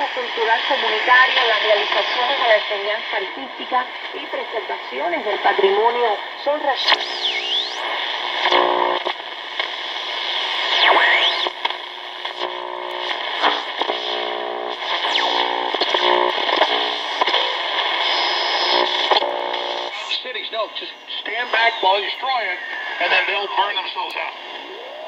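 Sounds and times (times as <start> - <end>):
radio static hiss: 0.0 - 25.0
buzzing tones: 6.8 - 20.0.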